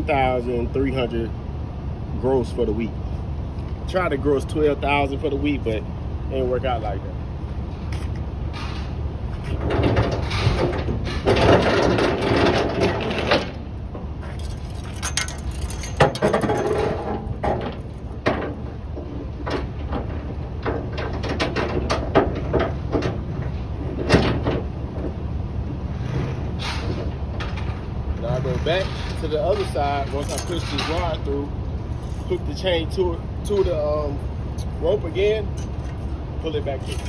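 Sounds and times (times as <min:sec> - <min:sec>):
steady low rumble: 0:00.0 - 0:37.0
steel chain clinking and rattling: 0:14.2 - 0:18.0, 0:28.6 - 0:31.2, 0:36.8 - 0:37.0.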